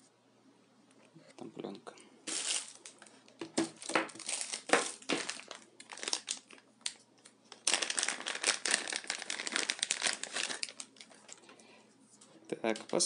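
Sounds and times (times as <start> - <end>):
plastic bag crinkling: 2.2 - 11.5.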